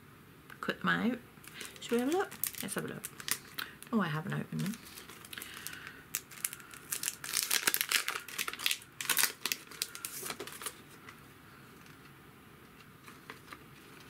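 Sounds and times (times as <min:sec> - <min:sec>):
plastic packet crinkling: 0:01.4 - 0:11.2.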